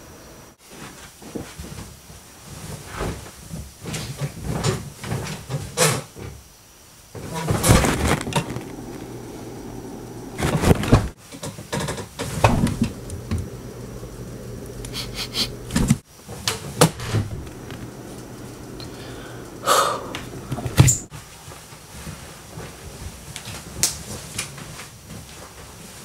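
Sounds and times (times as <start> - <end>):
bedclothes rustling and bumping: 0.6 - 5.8, 7.2 - 11.2, 20.2 - 26.0
steady low hum: 7.2 - 11.2, 12.3 - 16.0, 16.6 - 21.1.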